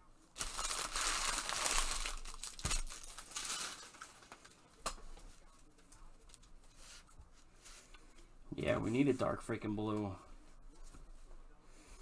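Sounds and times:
foil wrapper crinkling: 0.4 - 4.6.

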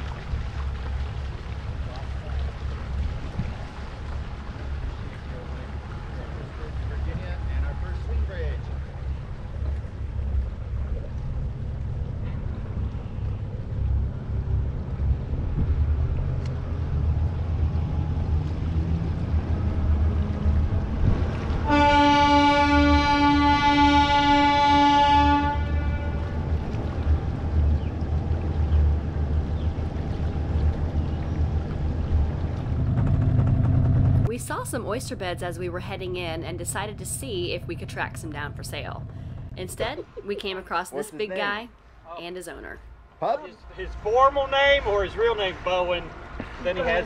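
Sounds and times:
boat engine rumble: 0.0 - 47.0
horn blast: 21.6 - 26.4.

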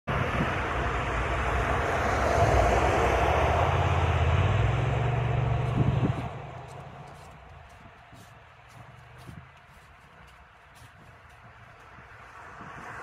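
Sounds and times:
jet engine overhead: 0.1 - 7.2.

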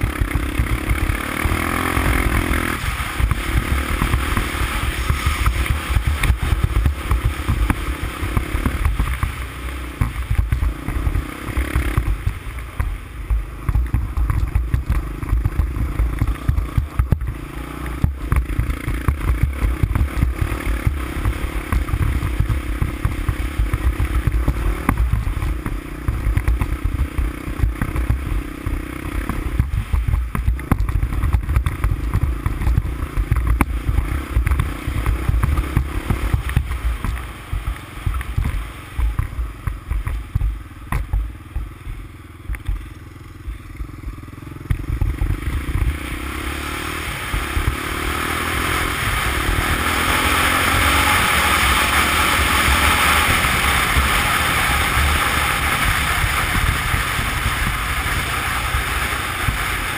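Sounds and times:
knocks from bumps: 0.0 - 42.9
quad bike engine running: 0.0 - 59.9
steady rushing noise: 0.0 - 59.9.

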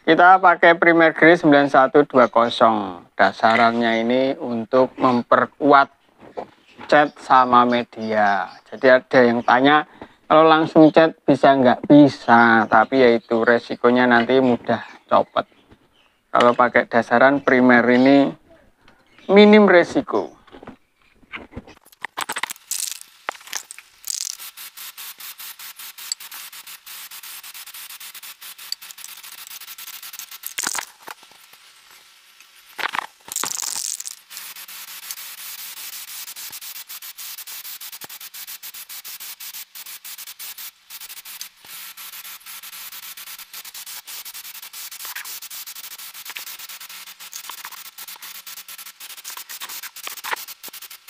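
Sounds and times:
aerosol spray can hissing: 22.5 - 51.0.

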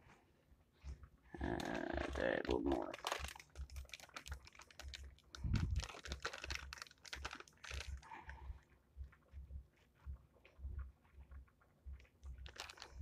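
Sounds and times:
plastic bag crinkling: 1.4 - 8.3, 12.3 - 13.0.

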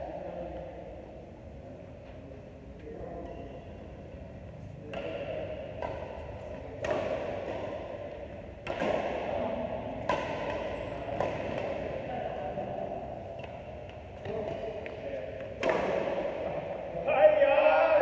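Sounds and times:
badminton racquets hitting shuttlecock: 4.9 - 16.8.

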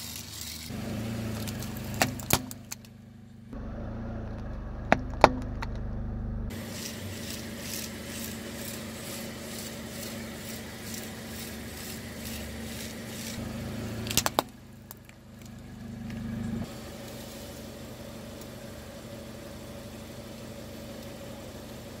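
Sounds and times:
car tyre rolling: 0.3 - 21.9
car engine humming: 0.7 - 22.0
plastic toys cracking under tyre: 14.0 - 15.5.

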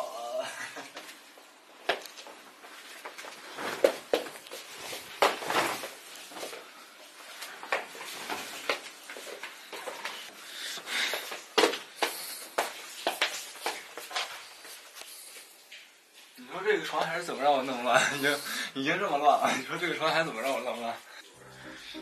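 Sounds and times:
cloth rustling: 1.0 - 10.3.

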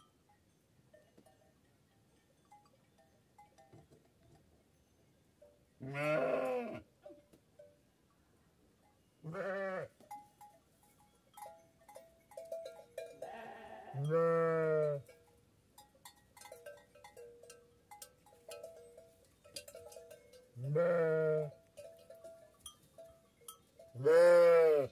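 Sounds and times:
small bells clinking: 0.0 - 5.7, 10.0 - 24.9
sheep bleating: 5.8 - 6.8, 9.3 - 9.9, 13.2 - 15.0, 20.6 - 21.5, 24.0 - 24.9.

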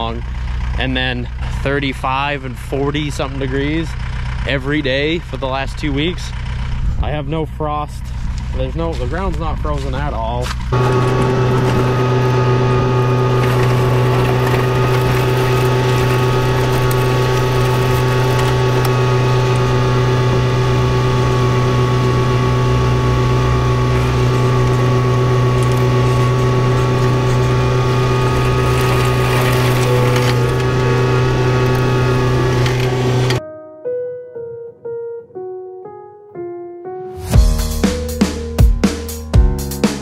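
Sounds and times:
engine droning hum: 0.0 - 33.4.

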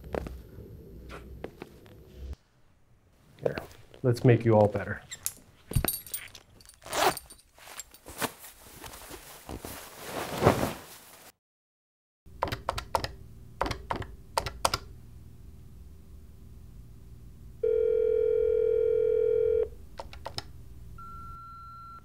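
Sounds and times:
telephone ringing tone: 17.6 - 19.7.

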